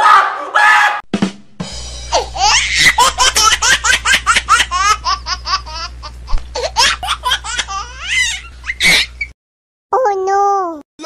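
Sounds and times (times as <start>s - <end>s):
low hum: 1.1s - 9.3s
high-pitched giggling: 2.1s - 9.3s.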